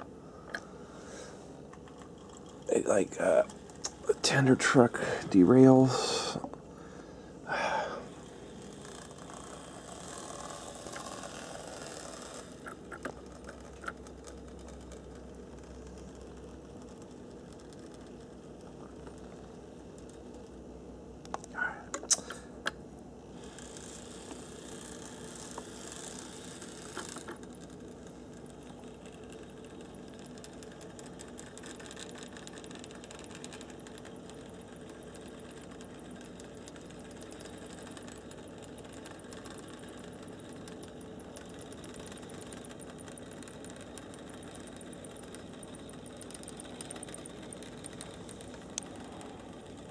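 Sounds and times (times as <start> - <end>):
model train motor whirring: 7.5 - 20.6, 23.3 - 49.9.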